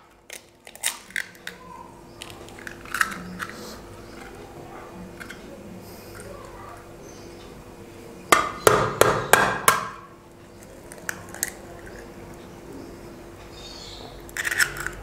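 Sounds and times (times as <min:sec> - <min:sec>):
egg tapping on hard edge: 0:08.3 - 0:10.1.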